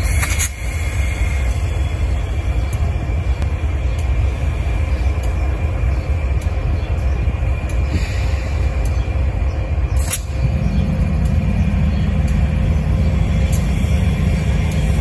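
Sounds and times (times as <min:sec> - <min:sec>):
diesel locomotive engines rumbling: 0:00.0 - 0:15.0.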